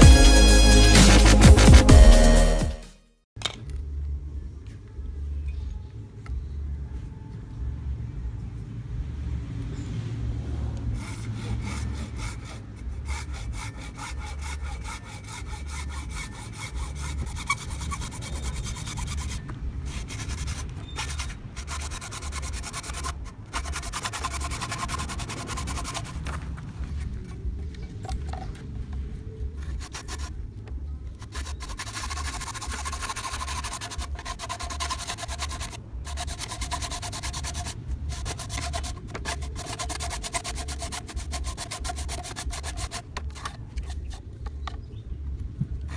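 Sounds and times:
hacksaw cutting plastic pipe: 11.0s - 26.4s, 31.2s - 44.7s.

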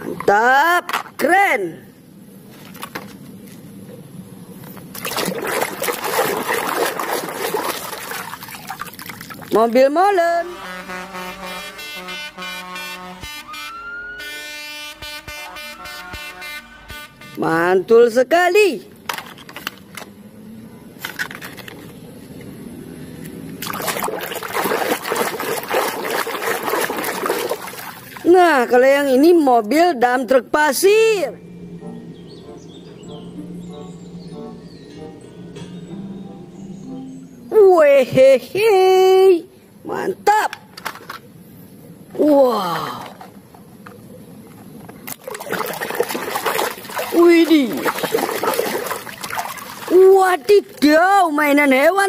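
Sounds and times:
water sloshing and splashing: 4.6s - 9.8s, 23.4s - 28.8s, 43.2s - 51.1s.

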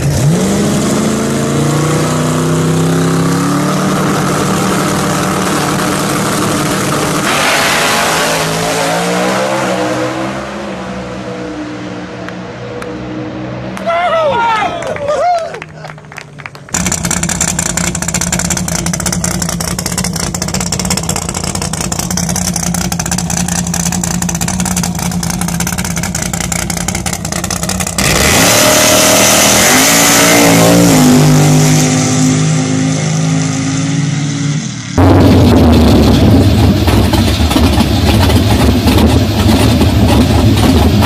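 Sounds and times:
rough rumbling engine revving: 0.0s - 14.3s, 15.7s - 41.0s
another loud engine running: 15.9s - 33.7s, 34.8s - 41.0s.

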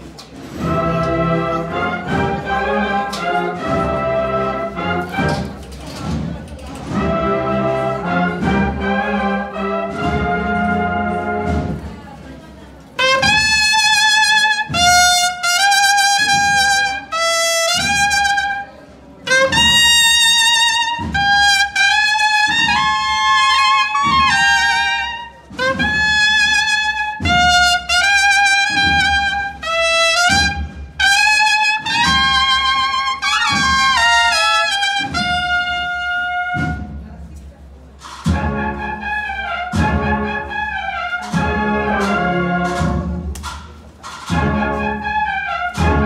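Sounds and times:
drum beats: 0.5s - 12.2s, 13.0s - 37.3s, 38.0s - 46.0s.

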